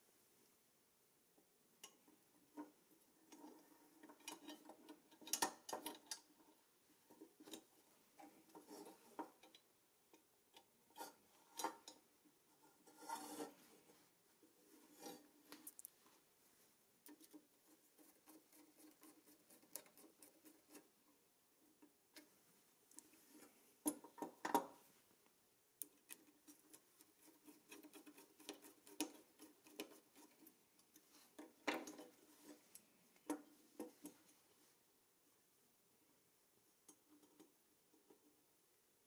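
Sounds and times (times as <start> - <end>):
metal parts clicking and tapping: 1.8 - 6.4.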